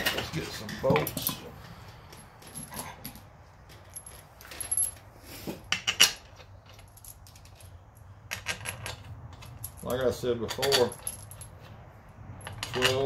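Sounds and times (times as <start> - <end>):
steel bolts clinking: 5.7 - 11.7, 12.4 - 13.0.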